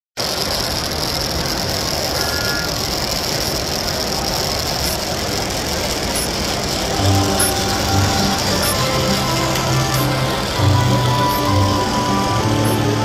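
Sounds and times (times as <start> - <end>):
hum of busy hall: 0.2 - 13.0
toy train motor whine: 0.2 - 13.0.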